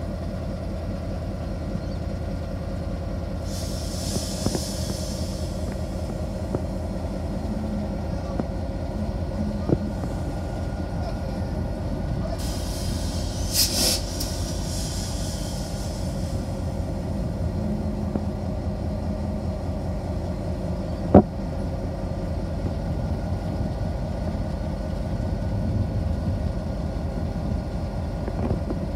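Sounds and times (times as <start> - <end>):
diesel locomotive idling: 0.0 - 28.9
short hiss: 3.5 - 6.3, 12.4 - 16.9.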